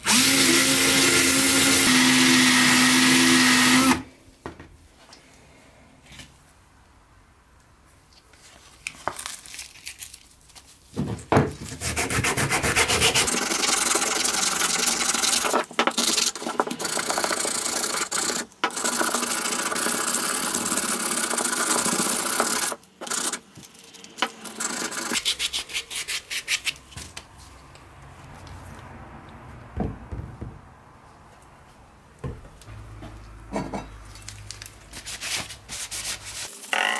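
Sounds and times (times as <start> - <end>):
sandpaper rubbing on wood: 11.8 - 13.6, 25.1 - 26.8, 35.0 - 36.6.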